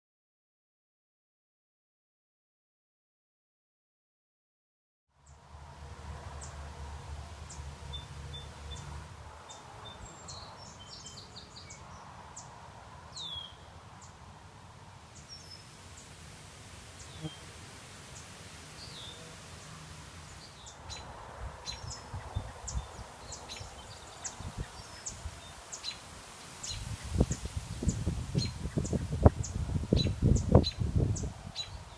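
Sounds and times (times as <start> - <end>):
small birds chirping: 7.5 - 12.5, 20.2 - 31.9
outdoor hiss: 14.2 - 20.8, 22.6 - 30.0.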